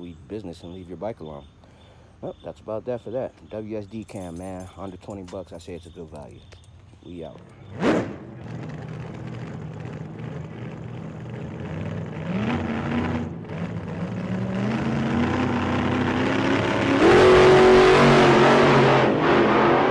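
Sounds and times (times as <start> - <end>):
car engine accelerating hard: 7.6 - 19.9.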